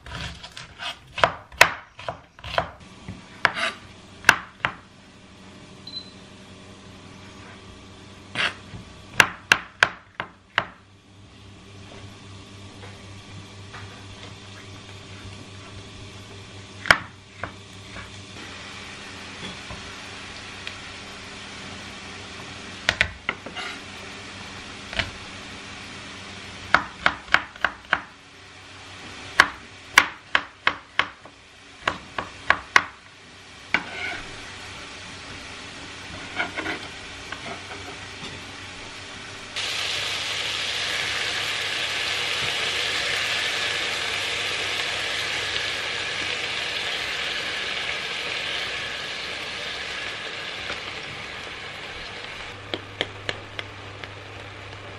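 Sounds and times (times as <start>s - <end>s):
knife chopping on wooden board: 0.0s - 2.8s, 3.4s - 4.8s, 8.3s - 10.8s
mushrooms sizzling in a pan: 16.0s - 30.6s, 39.1s - 54.9s.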